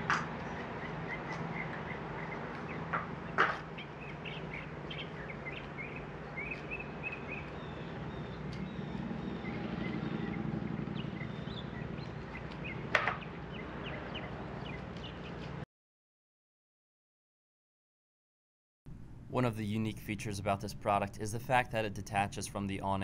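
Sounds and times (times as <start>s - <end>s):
birds chirping: 0.0s - 15.6s.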